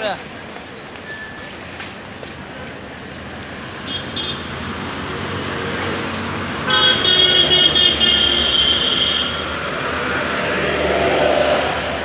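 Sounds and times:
street traffic noise: 0.0s - 12.0s
vehicle horn honking: 6.6s - 9.5s.

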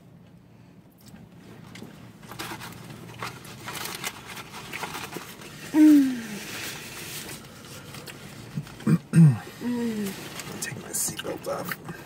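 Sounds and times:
paper rustling: 2.2s - 8.7s
person humming mmm: 5.7s - 6.5s.

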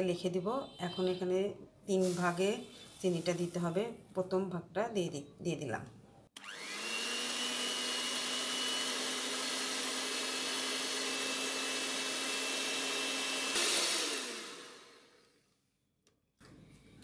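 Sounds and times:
electric hand mixer whirring: 6.4s - 15.4s.

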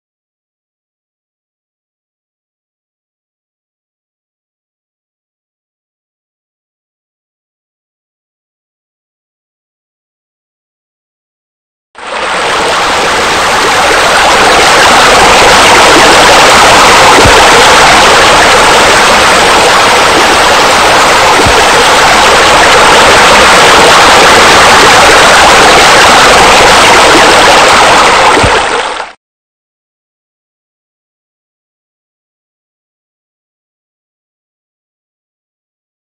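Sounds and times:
water rushing and splashing: 12.0s - 29.2s.

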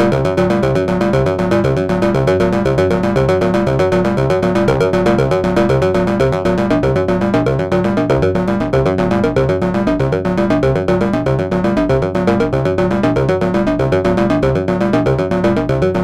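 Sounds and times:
low stepping synth bass: 0.0s - 16.0s
rapid electronic synth notes: 0.0s - 16.0s.

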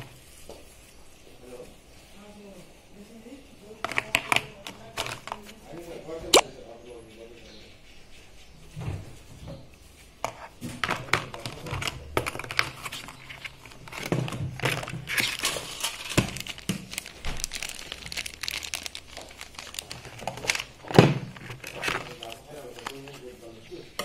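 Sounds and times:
packaging crinkling and rustling: 3.8s - 5.9s, 10.4s - 23.6s.

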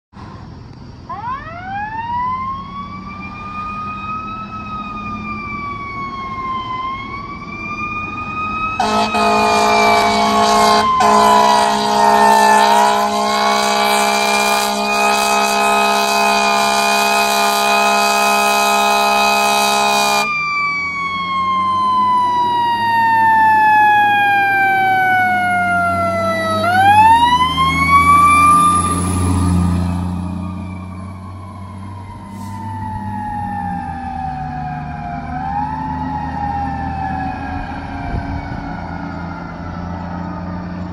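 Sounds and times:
fire engine siren wailing: 1.1s - 40.9s
heavy truck engine rumbling: 7.4s - 40.9s
air horn blast: 8.8s - 20.3s.

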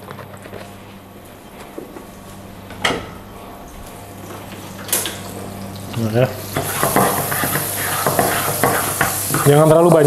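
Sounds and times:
steady low hum: 0.0s - 9.7s.

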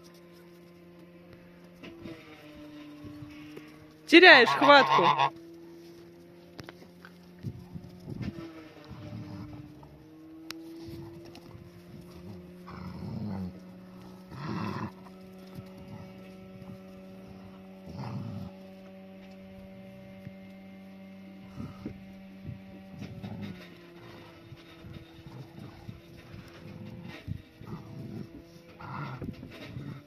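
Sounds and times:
steady low hum: 0.0s - 30.0s
dogs growling and barking: 10.9s - 18.9s, 22.9s - 30.0s.

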